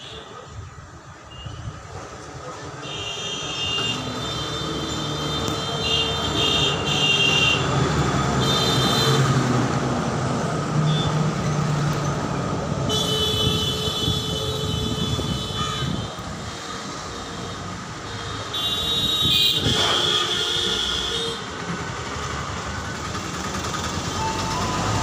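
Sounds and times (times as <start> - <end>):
vehicle rumble passing: 21.4 - 25.0.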